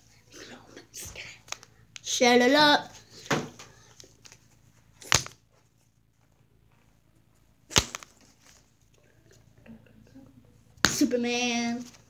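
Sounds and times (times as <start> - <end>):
sharp smacks: 5.0 - 5.4, 7.7 - 8.1.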